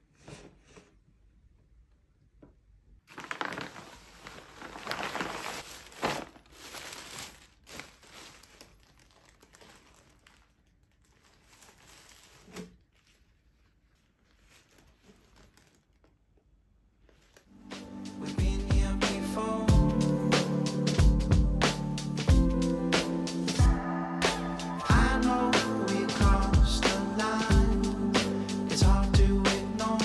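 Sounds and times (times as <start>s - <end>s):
packaging crinkling: 3.1s - 16.4s.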